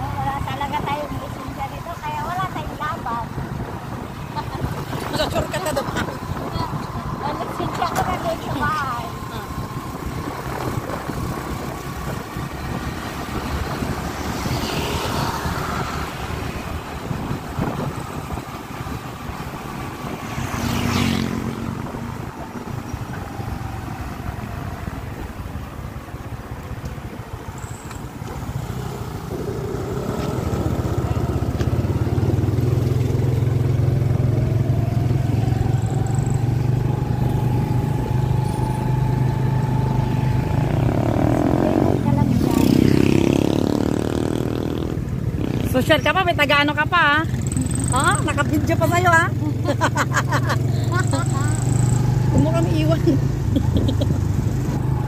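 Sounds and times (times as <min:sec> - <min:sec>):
motorcycle engine: 0:00.0 - 0:55.0
road and wind noise: 0:00.0 - 0:55.0
rising whine: 0:34.0 - 0:41.9.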